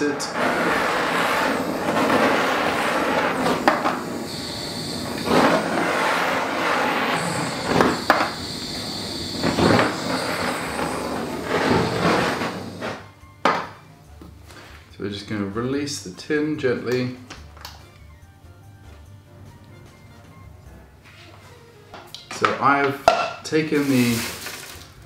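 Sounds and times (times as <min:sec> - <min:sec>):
blowtorch hissing: 0:00.0 - 0:13.1, 0:23.7 - 0:25.0.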